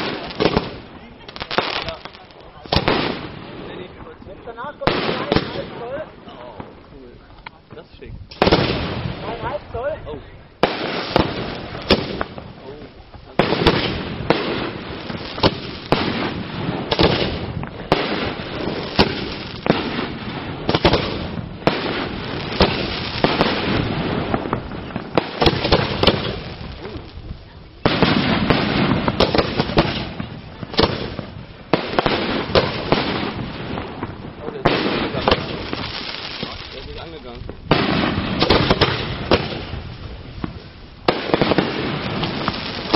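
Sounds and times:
fireworks crackling: 0:00.0 - 0:42.9
firework shells bursting: 0:10.6 - 0:42.9.

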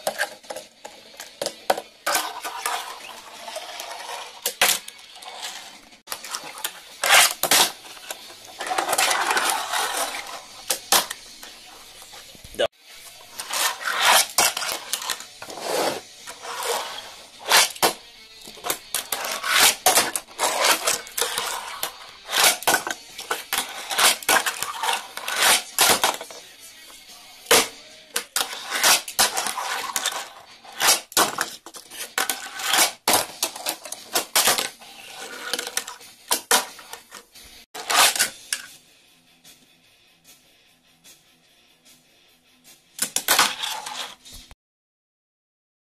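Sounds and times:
fingerboard wheels rolling: 0:00.0 - 0:11.7, 0:13.3 - 0:26.4, 0:28.2 - 0:37.2, 0:43.1 - 0:44.2.

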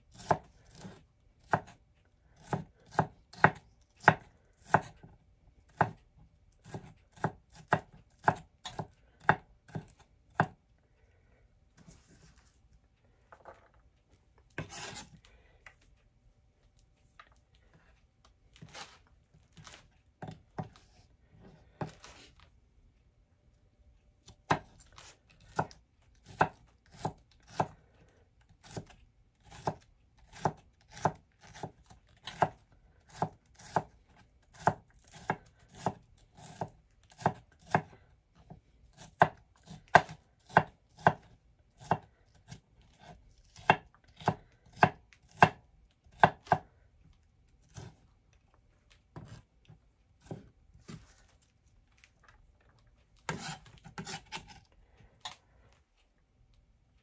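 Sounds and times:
knife chopping on wooden board: 0:00.1 - 0:01.8, 0:02.4 - 0:05.0, 0:05.7 - 0:06.0, 0:06.6 - 0:10.6, 0:14.6 - 0:15.1, 0:20.2 - 0:21.0, 0:25.4 - 0:27.7, 0:28.6 - 0:46.7, 0:47.6 - 0:48.0, 0:49.1 - 0:49.4, 0:50.2 - 0:51.1, 0:53.3 - 0:54.6.

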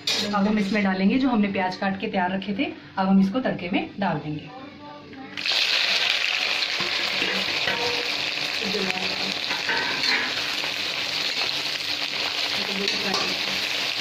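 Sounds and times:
onions sizzling in hot oil: 0:05.4 - 0:14.0.

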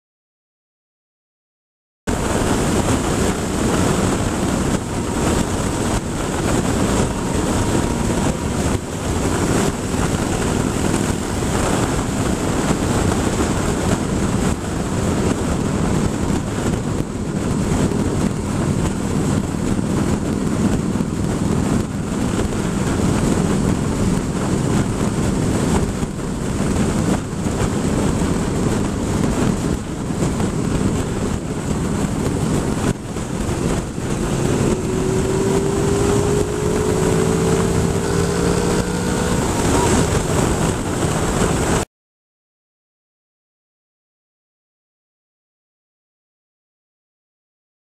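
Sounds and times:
motorcycle engine running: 0:02.1 - 0:41.8
wind rush on microphone: 0:02.1 - 0:41.9.

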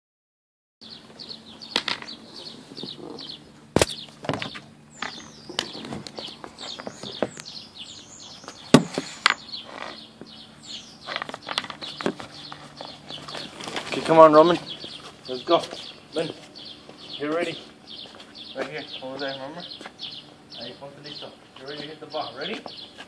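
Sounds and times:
small birds chirping: 0:00.8 - 0:23.0
sharp knocks: 0:08.7 - 0:09.4.

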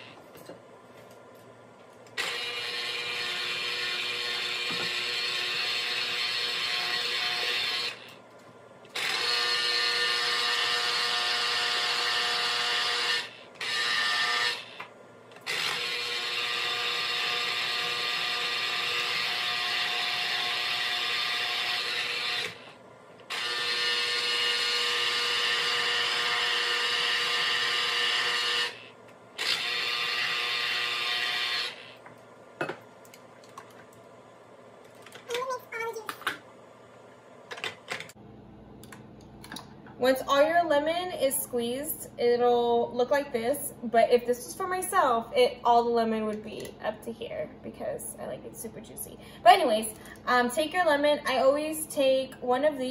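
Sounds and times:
citrus juicer motor whining: 0:02.1 - 0:08.3, 0:08.9 - 0:32.2.

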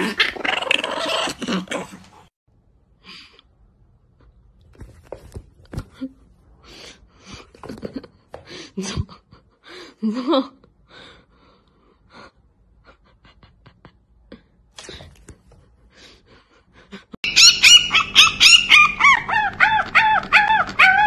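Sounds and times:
cat crying: 0:17.3 - 0:21.0.

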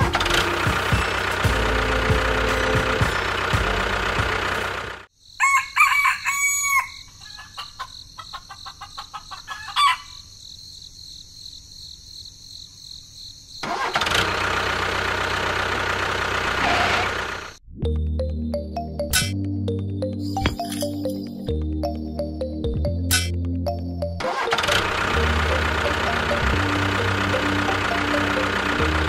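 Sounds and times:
background music: 0:00.0 - 0:04.8, 0:17.8 - 0:29.0
rooster crowing: 0:05.4 - 0:08.3
chicken clucking: 0:06.7 - 0:10.2.

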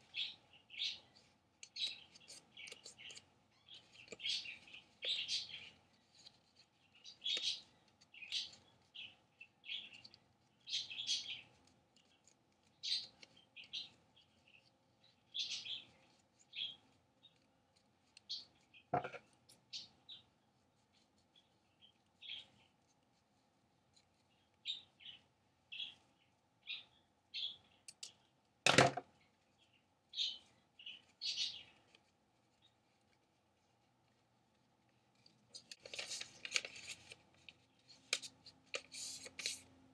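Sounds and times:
paper rustling: 0:01.0 - 0:19.6, 0:30.8 - 0:39.7.

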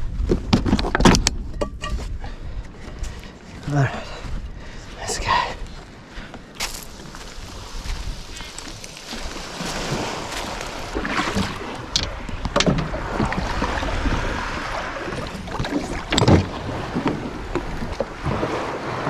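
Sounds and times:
wind buffeting microphone: 0:00.0 - 0:19.0
splashing water: 0:06.8 - 0:18.7.

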